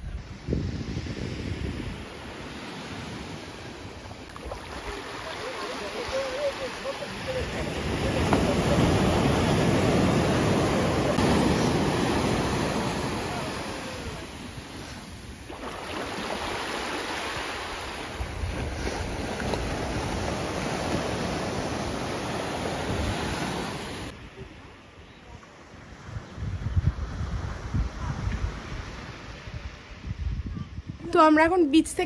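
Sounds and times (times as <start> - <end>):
sea waves breaking on beach: 0.0 - 24.7.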